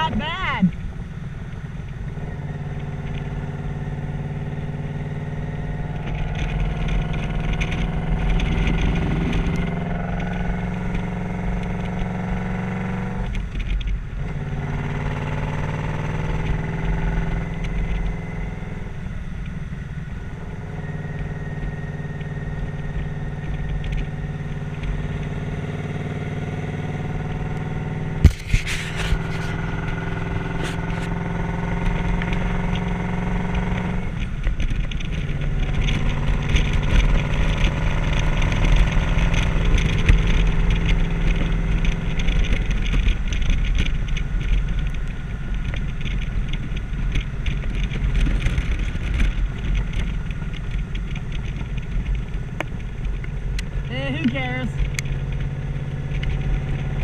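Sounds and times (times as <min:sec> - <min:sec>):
wind rushing over microphone: 0:00.0 - 0:21.5
motorcycle engine running: 0:00.0 - 0:57.0.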